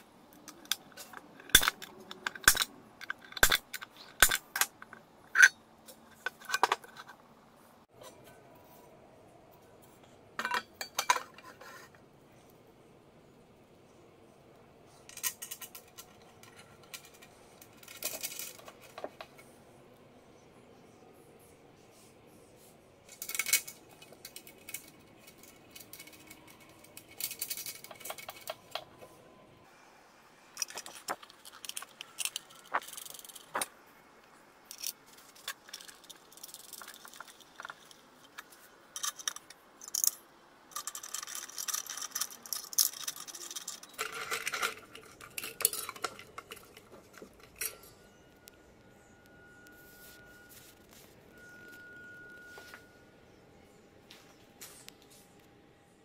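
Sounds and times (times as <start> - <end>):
metal screws clinking in a pan: 34.7 - 48.1.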